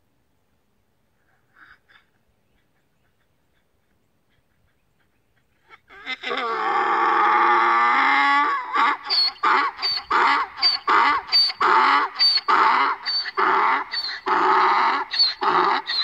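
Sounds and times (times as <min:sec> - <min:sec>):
donkey braying: 0:05.6 - 0:16.0.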